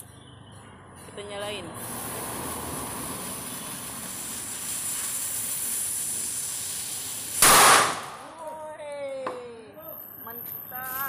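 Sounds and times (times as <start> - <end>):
firecracker fuse hissing: 1.5 - 8.5.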